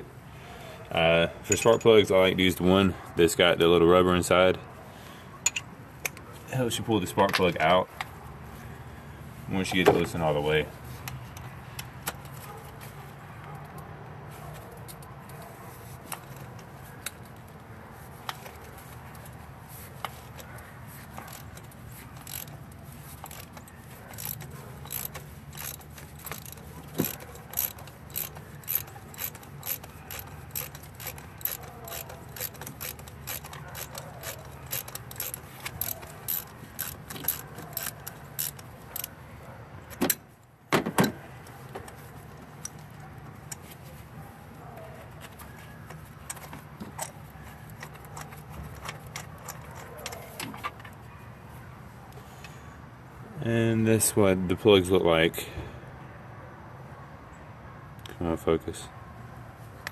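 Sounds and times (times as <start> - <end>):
ratchet wrench clicking: 21.1 - 39.1.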